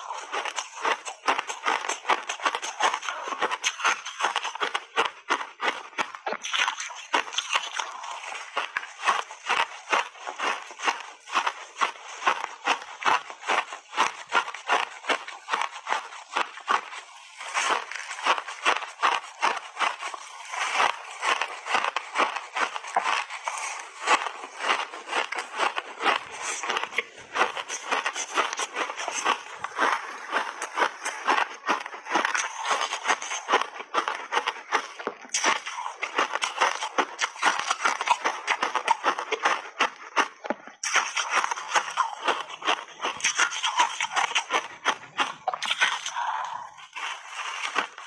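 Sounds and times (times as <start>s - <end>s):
ice crunching while chewed: 0.0s - 48.0s.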